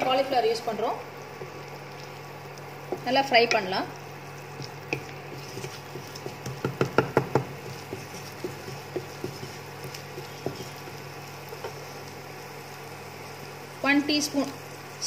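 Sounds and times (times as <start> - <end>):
onion frying in butter: 0.0 - 15.0
steady low hum: 0.0 - 15.0
wooden spatula knocking on pan: 5.9 - 10.8.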